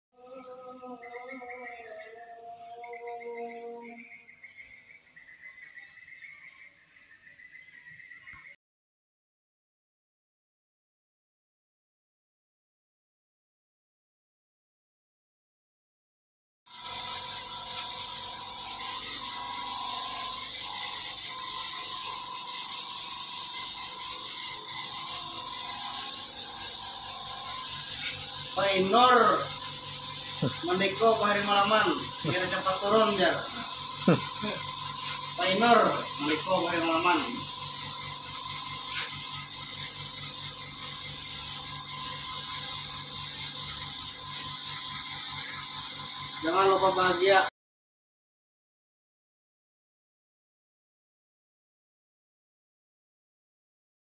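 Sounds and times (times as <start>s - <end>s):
air hissing: 16.7s - 47.3s
hand sanding wood: 20.4s - 37.4s.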